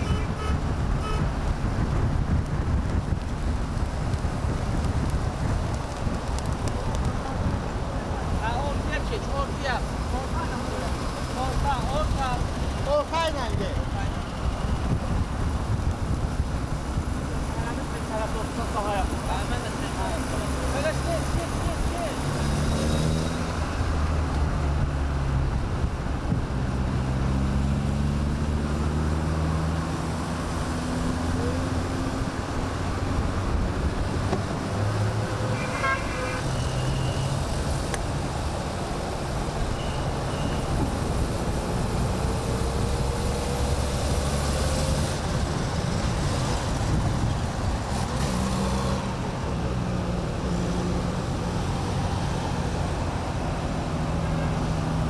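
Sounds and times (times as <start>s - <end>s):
car horn toot: 0.0s - 1.3s, 35.5s - 37.3s
car engines droning: 0.0s - 55.0s
road and tyre noise: 0.0s - 55.0s.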